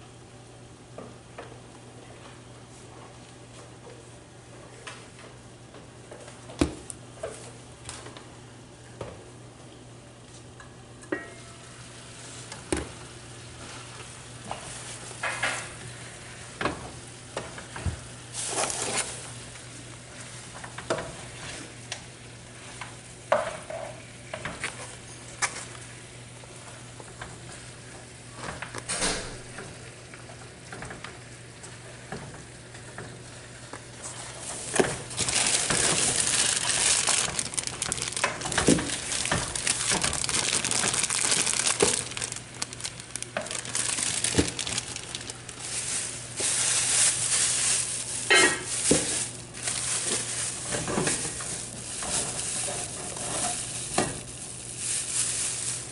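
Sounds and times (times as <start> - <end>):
plastic bag crinkling: 18.3 - 19.3, 34.1 - 55.9.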